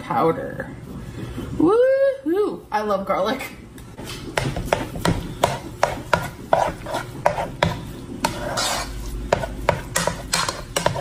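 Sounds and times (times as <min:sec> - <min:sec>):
spoon scraping and knocking pot: 0:04.3 - 0:11.0.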